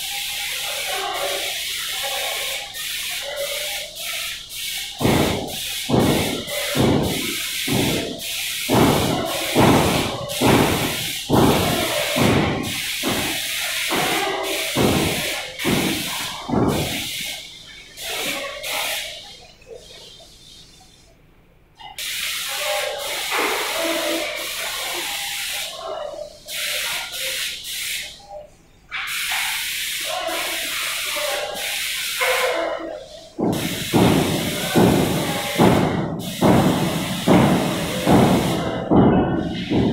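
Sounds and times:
paint sprayer hiss: 0:00.0 - 0:21.1, 0:21.8 - 0:39.9
pump thumping: 0:04.9 - 0:17.3, 0:33.4 - 0:39.9.

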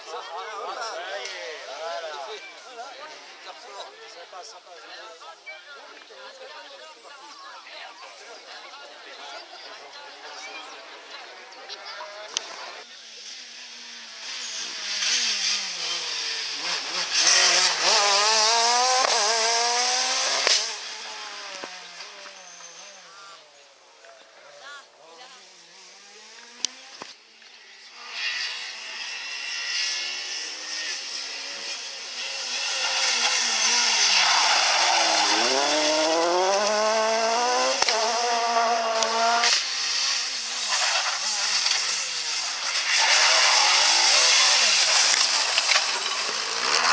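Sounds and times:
rally car engine accelerating past: 0:10.0 - 0:23.4, 0:25.5 - 0:46.9
sharp crack: 0:37.8 - 0:38.0, 0:39.0 - 0:39.7.

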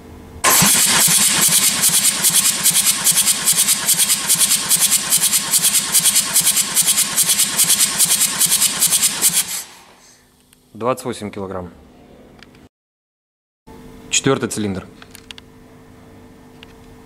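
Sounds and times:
diesel engine cranking and starting: 0:00.4 - 0:10.0.

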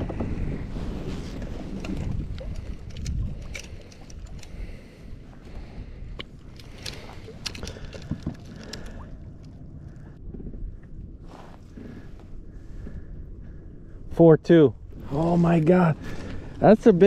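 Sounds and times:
wind buffeting microphone: 0:00.0 - 0:17.0
fishing gear clicks and rattles: 0:01.3 - 0:09.6.

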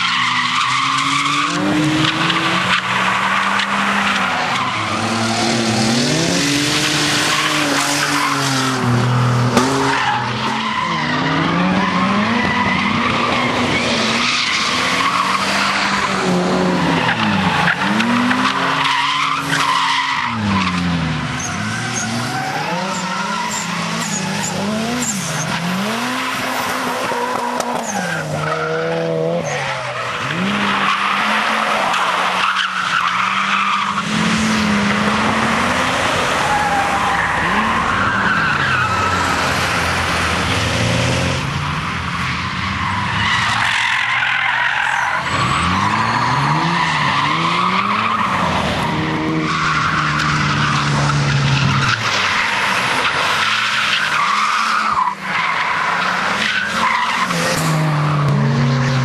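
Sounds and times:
car engines revving: 0:00.0 - 0:59.0.

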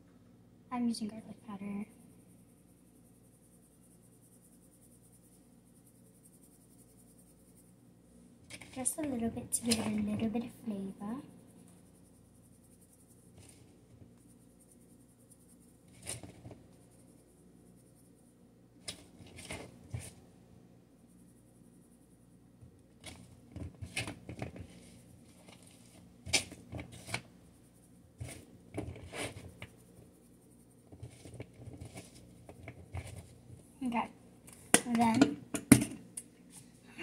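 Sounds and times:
hands mixing potato strips: 0:04.7 - 0:16.9, 0:22.8 - 0:36.8.

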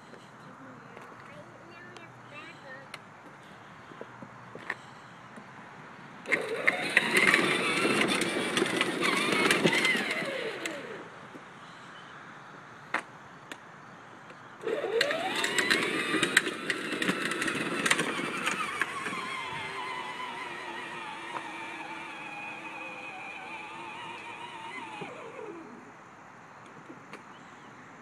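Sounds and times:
plastic wheels rattling on pavement: 0:06.2 - 0:11.1, 0:14.6 - 0:25.8
electric motor whine: 0:06.3 - 0:11.1, 0:14.6 - 0:25.8.

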